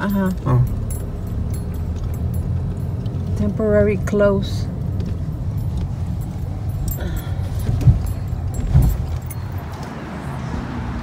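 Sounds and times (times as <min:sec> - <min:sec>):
car cabin rumble: 0:00.0 - 0:11.0
loud thumps: 0:07.6 - 0:09.4.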